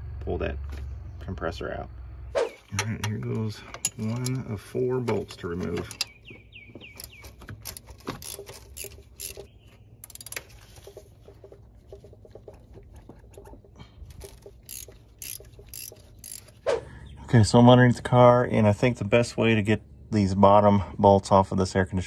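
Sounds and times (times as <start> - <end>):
tools and metal parts tapping: 2.7 - 16.6
socket ratchet clicking: 5.8 - 6.2, 6.8 - 10.5, 14.1 - 16.6.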